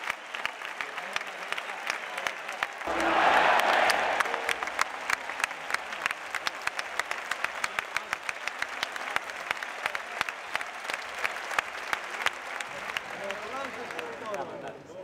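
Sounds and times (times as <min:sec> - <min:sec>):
crowd applauding: 0:00.0 - 0:14.8.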